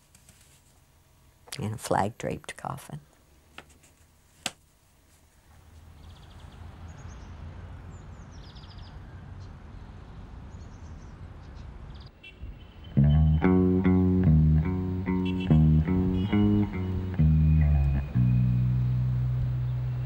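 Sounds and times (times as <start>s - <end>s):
birds chirping: 5.8s - 9.6s, 10.5s - 20.0s.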